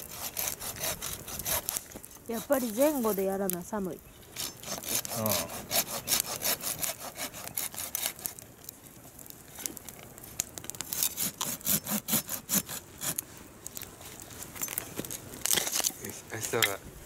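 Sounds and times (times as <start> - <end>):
blade rasping on wood: 0.0 - 3.1, 4.4 - 8.3, 10.9 - 13.2.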